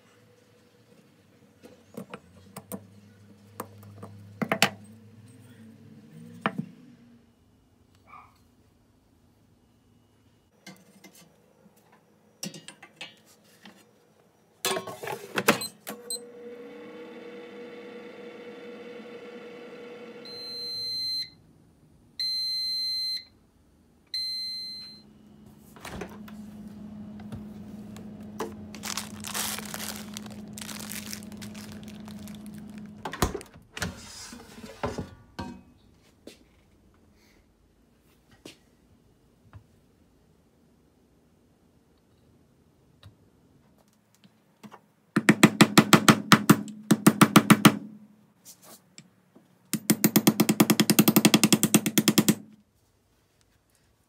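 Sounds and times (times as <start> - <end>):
air fryer fan hum: 16.2 - 20.4, 25.1 - 29.2.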